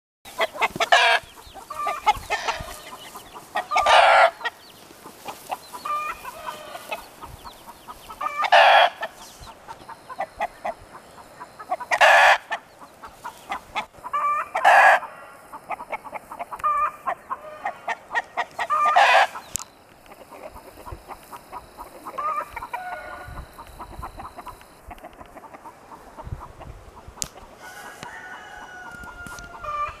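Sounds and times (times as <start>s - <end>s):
loud short chicken call: 0.3s - 2.9s, 22.1s - 23.5s
chickens clucking: 0.3s - 30.0s.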